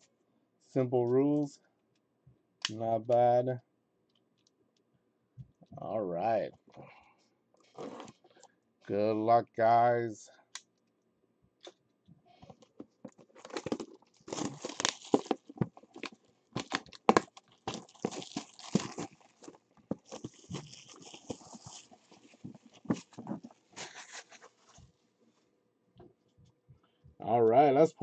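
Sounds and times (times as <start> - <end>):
plastic wrap tearing and crinkling: 13.1 - 24.8.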